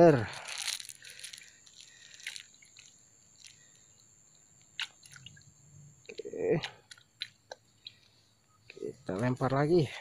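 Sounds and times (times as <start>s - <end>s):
soft squishing: 0.3s - 5.5s
man speaking: 8.8s - 10.0s.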